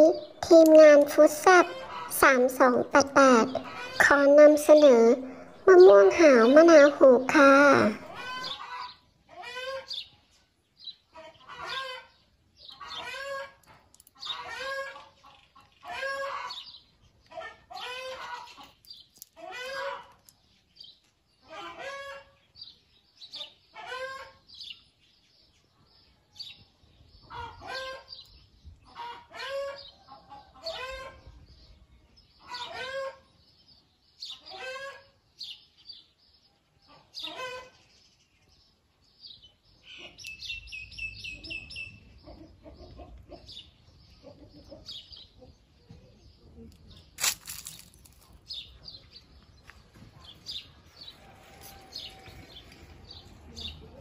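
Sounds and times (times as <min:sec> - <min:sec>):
chicken calling: 0:00.0 - 0:10.0.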